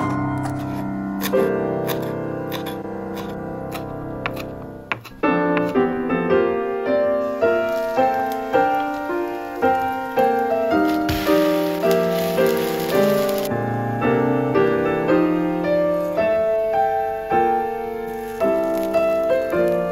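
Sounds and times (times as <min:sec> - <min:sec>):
piano music: 0:00.0 - 0:19.9
knife chopping on cutting board: 0:00.6 - 0:05.8.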